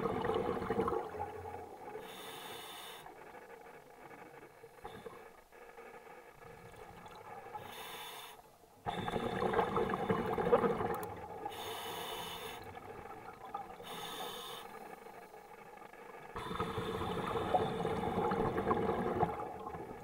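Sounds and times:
diver breathing through regulator: 2.0 - 3.4, 7.5 - 10.4, 11.4 - 13.0, 13.8 - 15.3.

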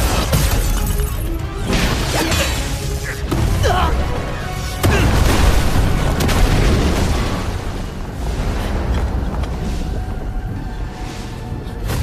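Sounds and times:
battle soundtrack music: 0.0 - 12.0
booming explosions: 4.8 - 9.6.

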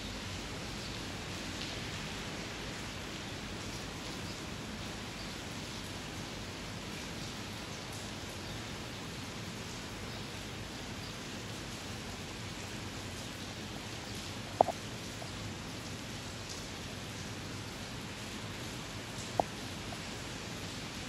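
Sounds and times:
steady rain hiss: 0.0 - 21.0
raindrop taps: 14.2 - 16.7, 19.0 - 20.2.

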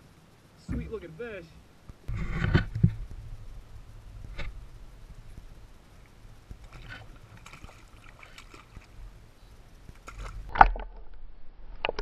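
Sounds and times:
water sloshing against kayak: 6.0 - 9.2, 9.8 - 10.8
fish splashing into water: 6.7 - 9.0, 10.0 - 10.7.

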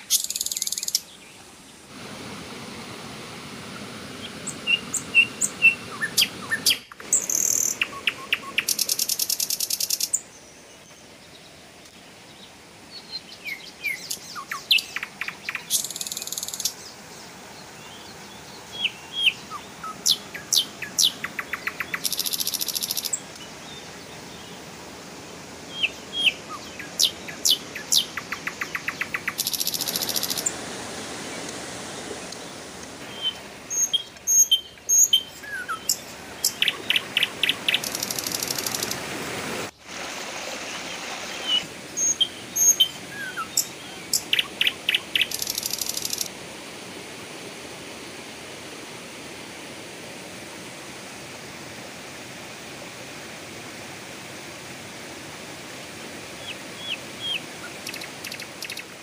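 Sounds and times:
birds chirping and trilling: 0.0 - 1.8, 4.2 - 11.6, 12.3 - 24.6, 25.7 - 30.5, 32.2 - 39.0, 40.8 - 46.3, 56.4 - 59.0
steady hiss: 0.0 - 59.0.

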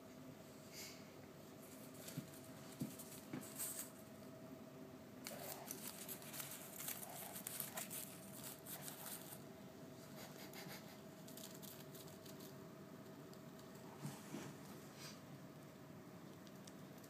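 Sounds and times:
bird feet on plastic grass: 1.6 - 4.3, 5.2 - 9.4.

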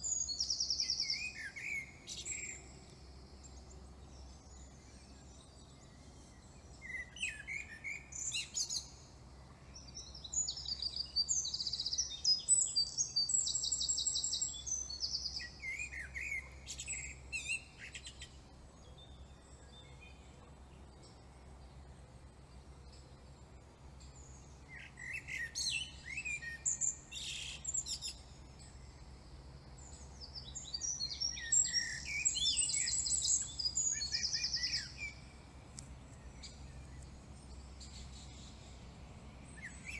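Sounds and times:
songbird chirps and trills: 0.0 - 39.9
faint low hum: 16.4 - 39.9.

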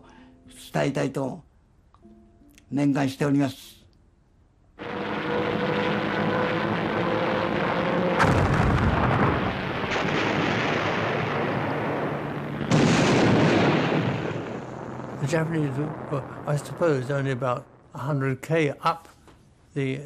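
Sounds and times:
continuous gunfire: 4.8 - 15.4
sharp explosion blast: 4.8 - 18.0.

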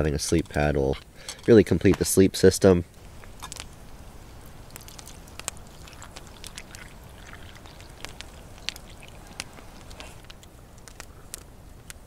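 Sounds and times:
campfire crackling: 0.0 - 12.0
low steady rumble: 2.6 - 12.0.

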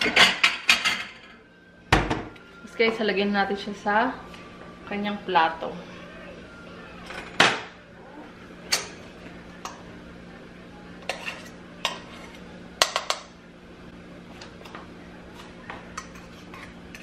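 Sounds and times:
metal spoon scraping a saucepan: 11.0 - 13.2, 15.9 - 17.0.

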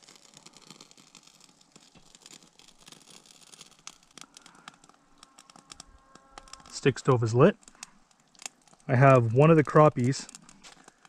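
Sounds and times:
fire crackling: 0.0 - 11.0
fire popping: 0.0 - 11.0.

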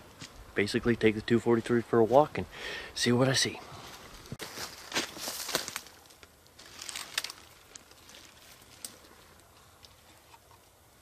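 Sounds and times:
dry brush rustling and crackling: 3.7 - 10.8.

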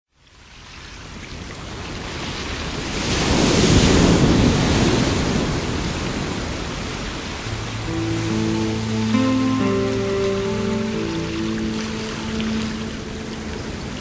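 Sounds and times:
rushing surf-like noise: 3.1 - 14.0.

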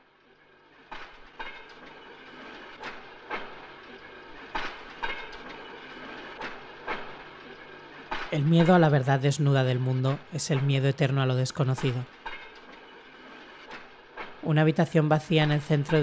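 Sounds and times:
steady hiss of the ride: 0.0 - 16.0
steel wheels clacking over rail joints: 0.0 - 16.0.

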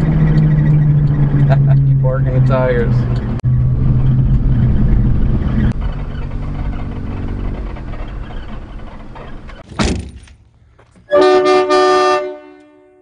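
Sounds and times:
truck engine running: 0.0 - 9.6
thunk: 9.6 - 10.4
vehicle horn blast: 11.1 - 13.0.

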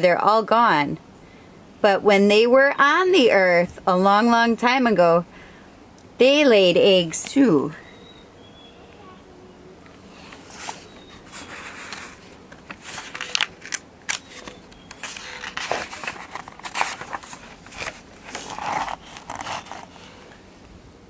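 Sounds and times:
book pages turning: 10.2 - 20.4.

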